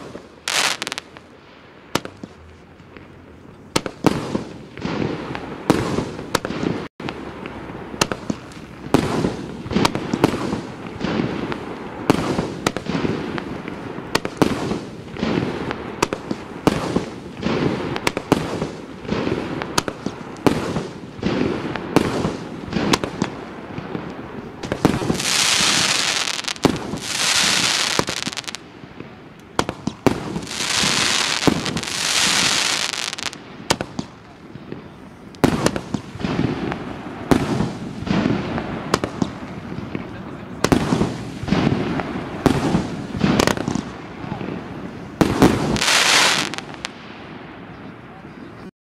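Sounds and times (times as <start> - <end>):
firework hiss: 0.0 - 2.8, 8.0 - 34.2, 44.7 - 47.1.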